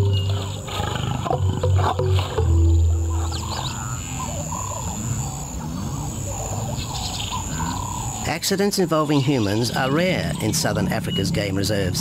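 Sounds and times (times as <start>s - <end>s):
background music: 0.0s - 5.1s
lion growling: 0.0s - 12.0s.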